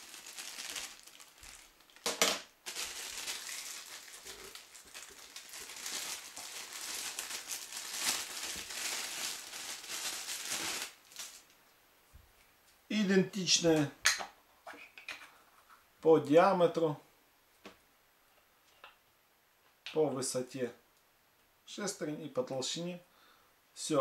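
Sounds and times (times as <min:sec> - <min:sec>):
plastic bag crinkling: 0:00.0 - 0:11.6.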